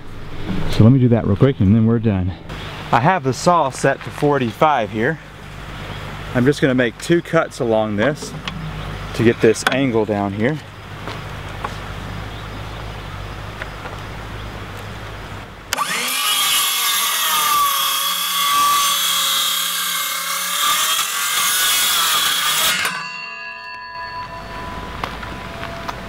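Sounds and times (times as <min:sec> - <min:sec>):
circular saw cutting wood: 0:15.7 - 0:26.0.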